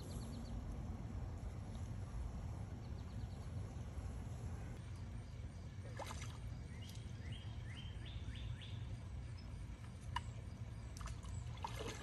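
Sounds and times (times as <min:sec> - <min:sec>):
bird chirping: 0:06.7 - 0:09.6.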